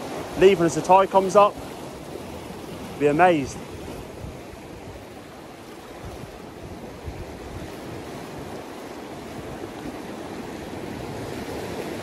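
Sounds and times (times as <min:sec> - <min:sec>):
sea swell washing around rocks: 0:00.0 - 0:12.0
wind rumbling on microphone: 0:00.0 - 0:12.0.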